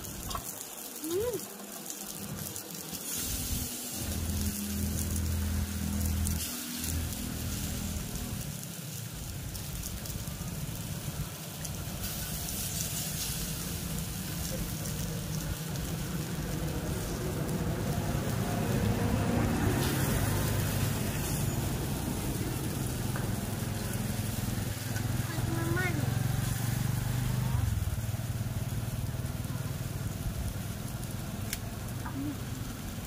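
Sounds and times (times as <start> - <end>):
meat sizzling on a grill pan: 0.0 - 33.0
road traffic rumble: 0.0 - 33.0.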